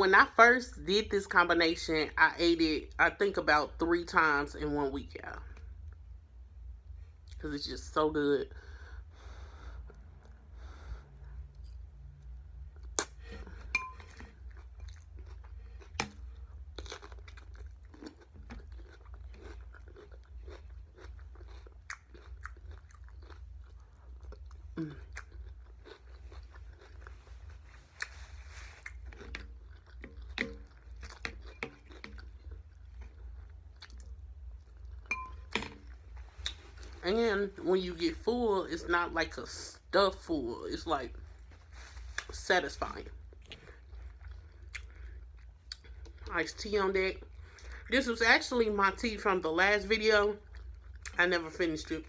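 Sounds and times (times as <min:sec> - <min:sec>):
person chewing food: 0:09.1 - 0:37.0, 0:43.0 - 0:46.3, 0:50.4 - 0:51.2.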